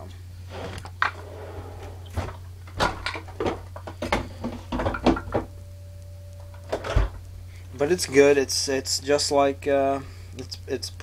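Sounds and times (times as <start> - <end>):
objects clattering: 0.8 - 5.6
faint steady tone: 4.0 - 10.5.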